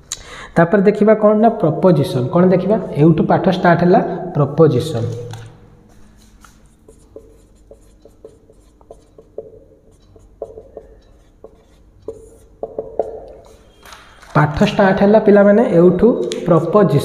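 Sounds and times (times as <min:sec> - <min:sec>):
marker squeaking on whiteboard: 0:06.0 - 0:14.4.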